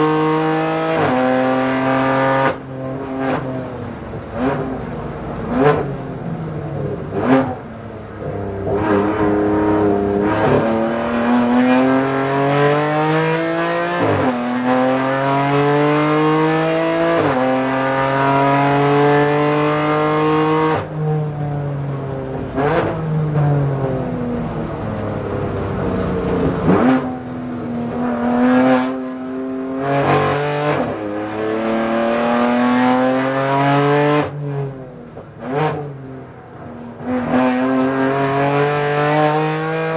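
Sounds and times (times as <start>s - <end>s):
race car engine accelerating: 0.0s - 3.5s, 8.6s - 20.9s, 37.0s - 39.9s.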